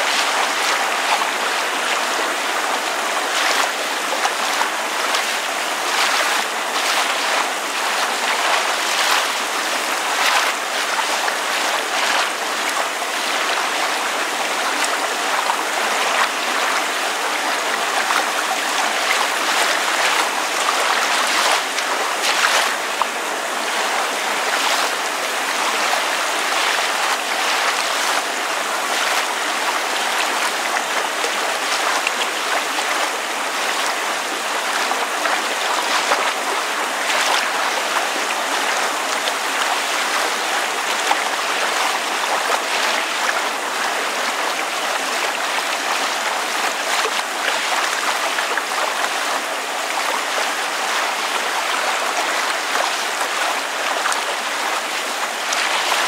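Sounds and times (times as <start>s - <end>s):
water lapping: 0.0s - 56.0s
small drips and splashes: 3.3s - 13.6s, 18.0s - 23.1s, 34.6s - 43.5s.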